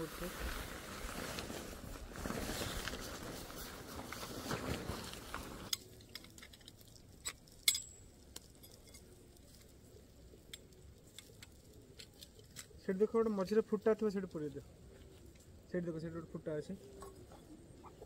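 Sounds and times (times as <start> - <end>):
tent fabric rustling: 0.0 - 5.7
tent pole sections clicking: 2.2 - 13.3.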